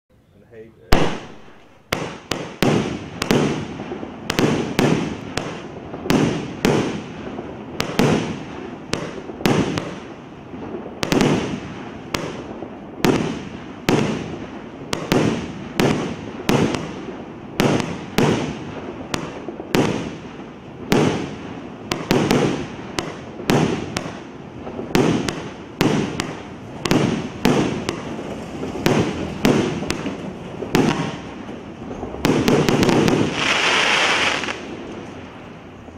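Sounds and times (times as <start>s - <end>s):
fireworks bangs with rumbling tail: 0.8s - 35.9s.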